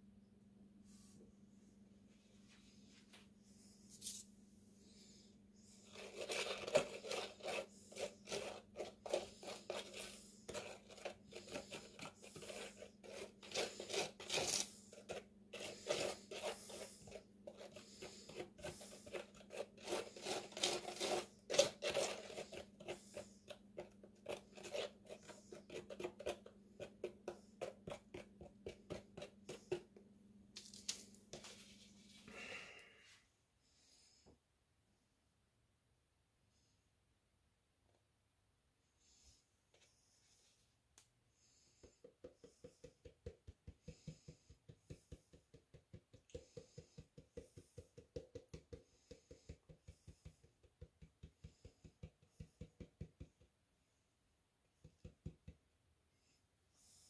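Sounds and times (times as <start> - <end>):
faint steady hum: 0.0 - 52.7
stick scraping in plastic cup: 5.8 - 29.8.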